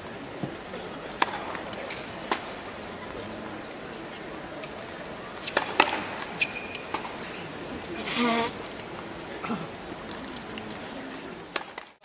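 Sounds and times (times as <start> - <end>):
low indoor background noise: 0.0 - 12.0
tennis balls and rackets clicking: 0.3 - 2.6, 5.4 - 7.2, 11.4 - 12.0
buzzing squeak: 6.4 - 6.9.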